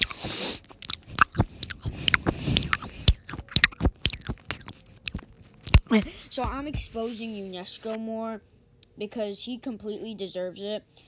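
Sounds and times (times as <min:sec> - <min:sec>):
person chewing crunchy cookie: 0:00.0 - 0:06.4.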